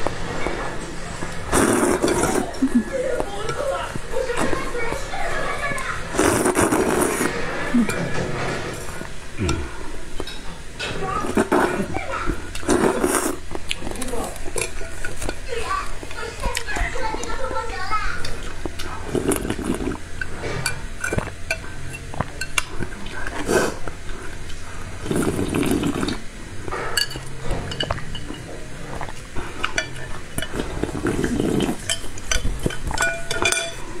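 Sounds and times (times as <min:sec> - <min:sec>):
chopsticks scraping a bowl: 0:00.0 - 0:17.5, 0:18.2 - 0:34.0
person slurping from bowl: 0:01.4 - 0:05.0, 0:06.1 - 0:10.3, 0:11.2 - 0:11.9, 0:12.5 - 0:15.3, 0:18.4 - 0:26.3, 0:28.8 - 0:33.0.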